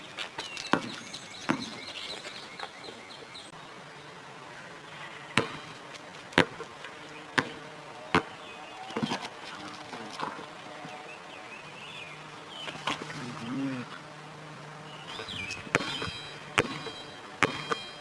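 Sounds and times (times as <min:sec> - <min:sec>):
basketball bouncing on concrete: 0:00.7 - 0:02.0, 0:05.4 - 0:09.3, 0:15.1 - 0:18.0.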